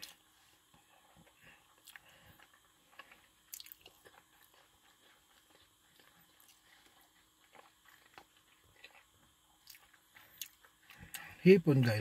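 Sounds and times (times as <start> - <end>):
faint chewing: 0.0 - 11.4.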